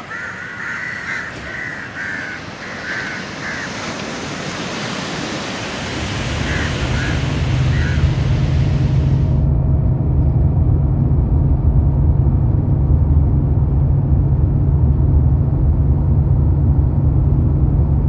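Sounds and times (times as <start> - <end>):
crows cawing: 0.0 - 4.7, 6.2 - 8.9
surf washing: 0.0 - 9.5
low rumble: 6.0 - 18.0.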